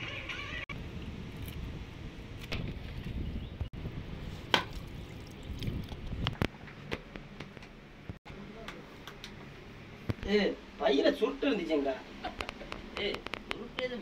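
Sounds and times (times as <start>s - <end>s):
coconut being struck and cracked: 4.5s - 4.8s.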